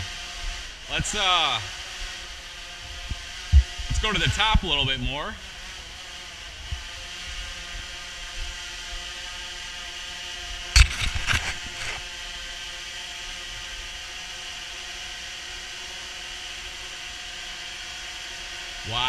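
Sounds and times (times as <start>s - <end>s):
drone propellers whirring: 0.0s - 19.0s
knocks and rustles: 10.8s - 12.0s.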